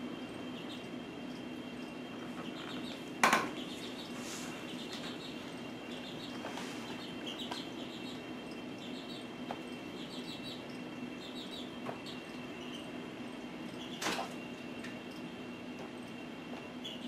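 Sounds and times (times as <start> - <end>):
chicks peeping: 0.0 - 17.0
steady background hum: 0.0 - 17.0.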